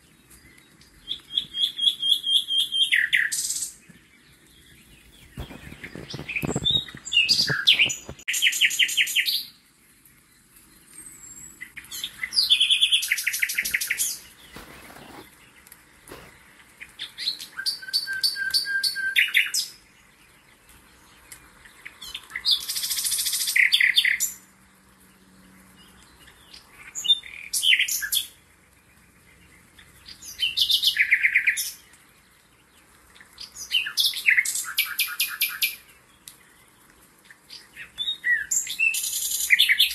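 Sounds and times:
songbird trilling and chirping: 0.4 - 9.5, 10.3 - 16.3, 29.2 - 36.8.

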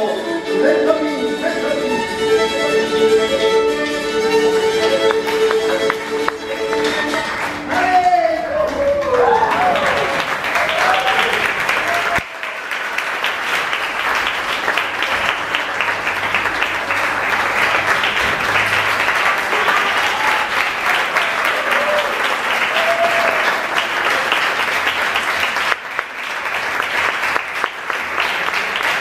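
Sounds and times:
audience applauding: 4.2 - 29.0.

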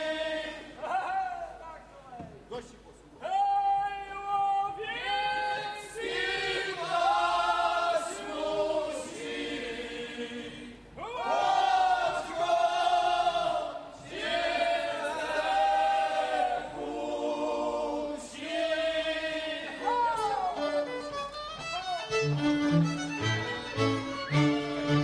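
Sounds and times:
string band with fiddles: 19.8 - 25.0.

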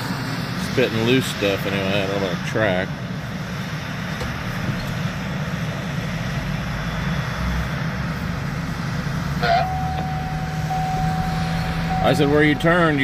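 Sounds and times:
vehicle engine hum: 0.0 - 13.0
steady high tone: 9.2 - 13.0.

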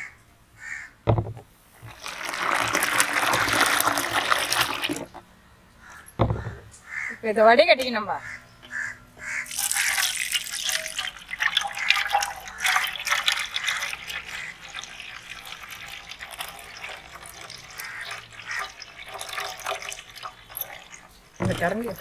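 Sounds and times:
juice pouring through a strainer: 1.8 - 5.2, 9.4 - 22.0
liquid splashing and trickling: 1.8 - 5.2, 9.4 - 22.0.

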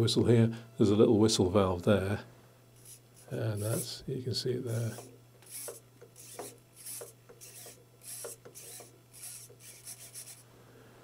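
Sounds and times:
servo motor whirring buzzes: 2.8 - 4.0, 4.7 - 10.4.

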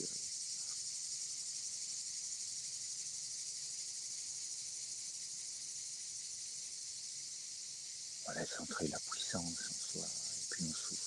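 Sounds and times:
high-pitched insect chorus: 0.0 - 11.0.

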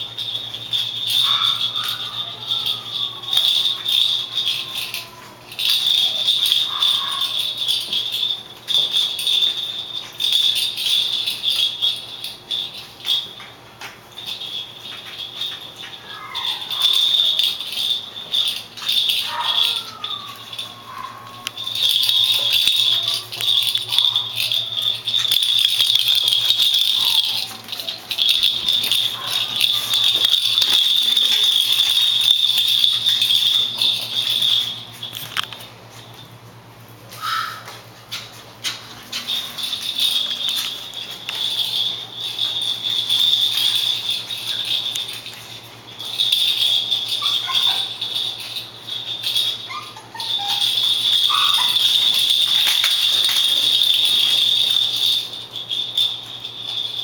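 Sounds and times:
plastic rattle ball rattling: 0.0 - 36.4, 37.1 - 57.0
puppy whines: 1.1 - 7.5, 15.8 - 35.3, 37.1 - 37.8, 49.3 - 52.7.

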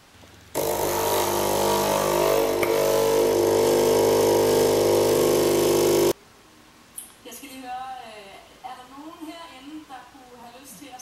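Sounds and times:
coffee machine pump buzzing hum: 0.6 - 6.2
coffee pouring into cup: 0.8 - 6.1.

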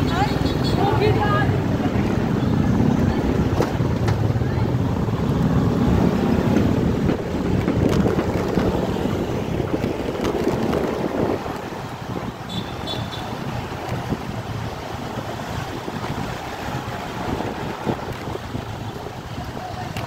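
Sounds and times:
wind noise on microphone: 0.0 - 20.0.

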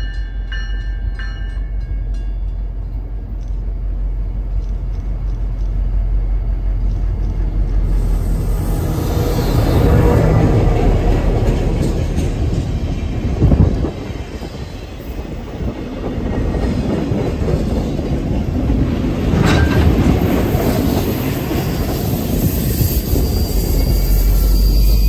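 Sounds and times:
diesel locomotive rumble: 0.0 - 25.0
train wheels clacking over joints: 9.7 - 14.0
train wheels squealing: 20.6 - 25.0.

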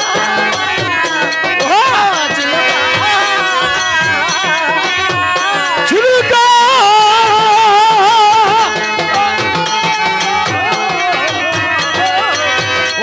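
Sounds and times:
drum: 0.0 - 13.0
fast ticking percussion: 0.0 - 13.0.

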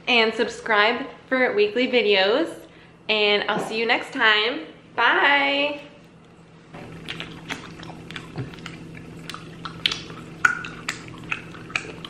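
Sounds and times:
steady low hum: 0.0 - 12.0
chewing sticky candy: 6.8 - 12.0.

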